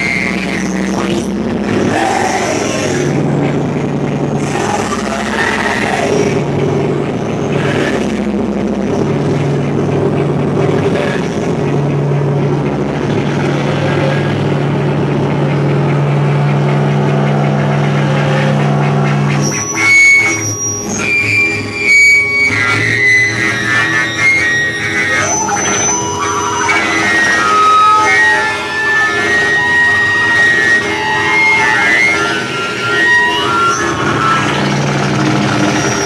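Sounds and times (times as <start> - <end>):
distorted noise music: 0.0 - 36.0
low drone: 0.0 - 36.0
piercing high tones: 14.0 - 36.0.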